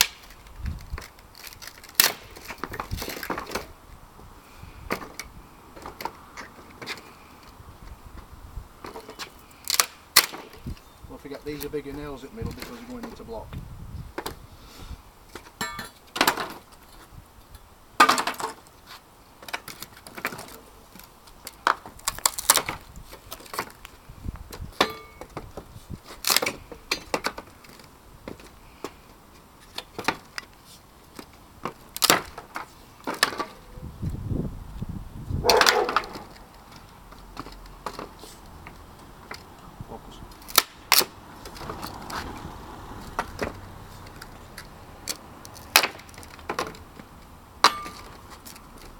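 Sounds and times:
wooden boards being pried apart: 0.0 - 3.8, 8.8 - 10.7, 19.4 - 23.8, 24.5 - 29.0, 29.7 - 30.5, 31.1 - 33.7, 35.4 - 39.5, 40.4 - 42.4, 45.0 - 48.9.

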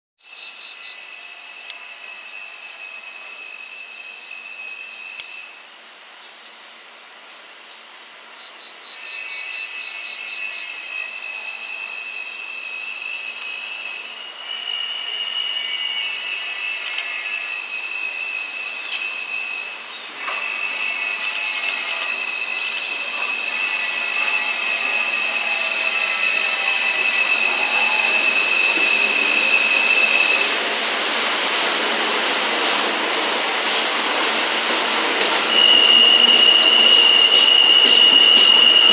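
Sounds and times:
subway train wheels squealing: 0.2 - 38.9
train cars rushing past: 9.0 - 38.9
sharp clicks: 16.8 - 17.1, 21.2 - 22.9.

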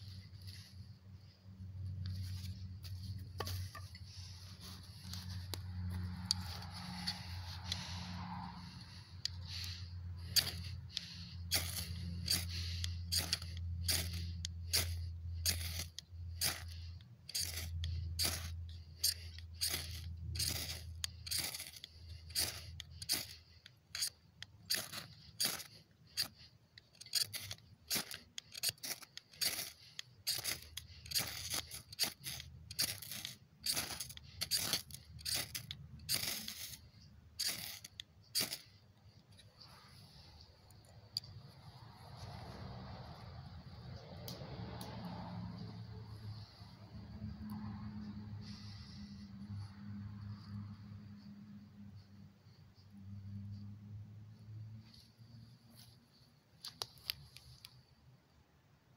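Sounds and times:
metal striker scraping fire rod: 1.7 - 42.6.

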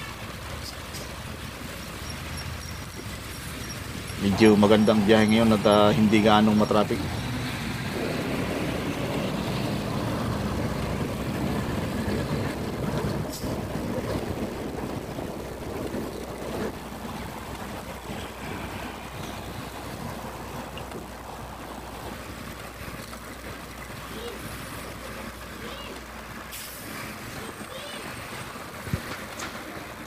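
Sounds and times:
motorcycle engine humming: 0.0 - 24.9
tyre and traffic noise: 0.0 - 30.0
wind on microphone: 7.0 - 23.6.

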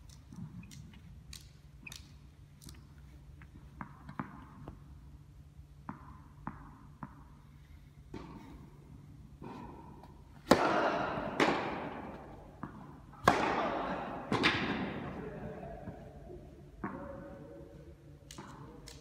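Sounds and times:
rackets hitting tennis balls: 0.0 - 19.0
tennis ball bouncing: 3.4 - 4.8, 5.7 - 7.4, 8.1 - 8.5, 9.4 - 15.0.

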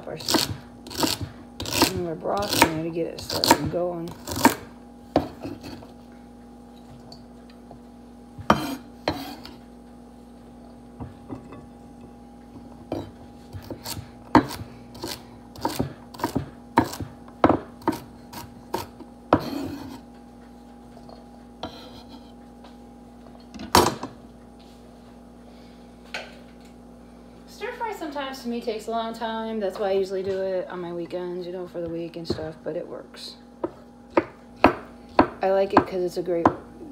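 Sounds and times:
knife chopping on wooden board: 0.2 - 5.9, 8.4 - 9.6, 12.9 - 20.0, 33.6 - 36.7.

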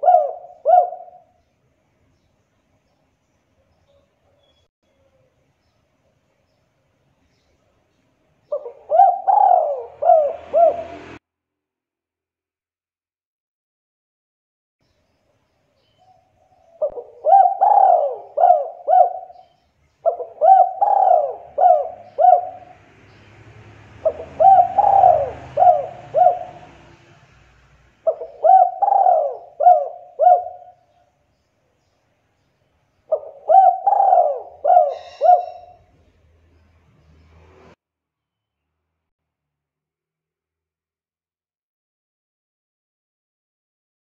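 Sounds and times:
dove cooing: 0.0 - 1.4, 8.5 - 11.2, 16.0 - 22.8, 24.0 - 27.1, 28.0 - 31.0, 33.1 - 35.9.

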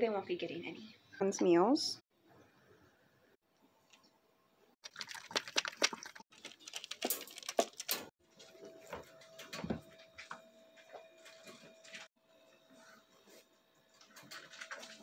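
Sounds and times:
dry kibble clattering in bowl: 4.9 - 8.0.

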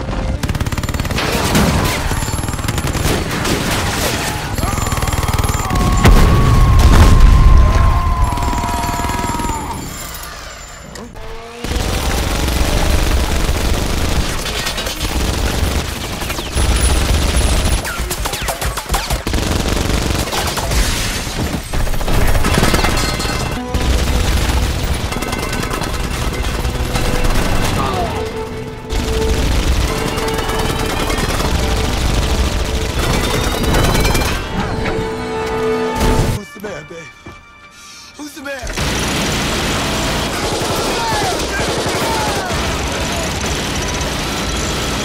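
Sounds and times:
minigun firing rapid shots: 0.0 - 7.2, 11.6 - 28.2, 28.9 - 34.4, 38.8 - 45.0
film music score: 21.7 - 45.0.

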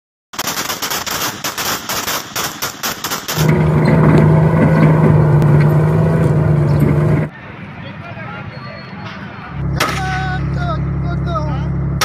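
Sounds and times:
automatic gunfire: 0.4 - 3.4
armoured vehicle engine drone: 3.4 - 7.5, 9.0 - 12.0.

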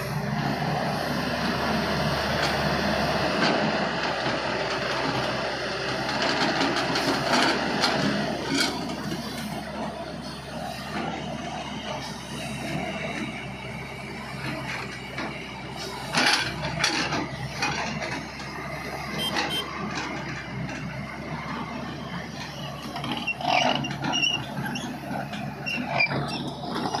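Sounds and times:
excavator diesel engine running: 0.0 - 27.0
excavator bucket clanks and rattles: 3.3 - 11.3, 14.3 - 27.0.

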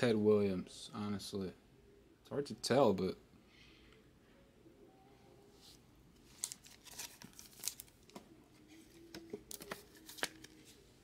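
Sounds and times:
plastic crinkling: 6.2 - 8.2.

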